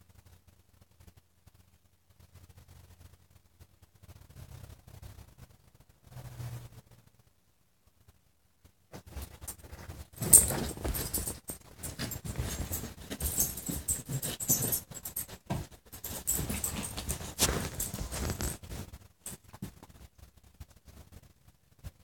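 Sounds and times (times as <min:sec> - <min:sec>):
dog scuffing and rustling: 0:09.0 - 0:18.9
collar tags jingling: 0:09.1 - 0:19.5.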